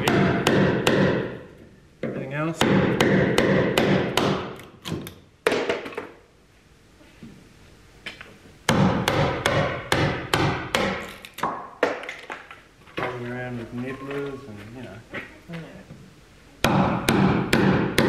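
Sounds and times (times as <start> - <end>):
mallet striking chisel into wood: 0.0 - 1.3, 2.0 - 4.6, 8.7 - 12.0, 16.6 - 18.0.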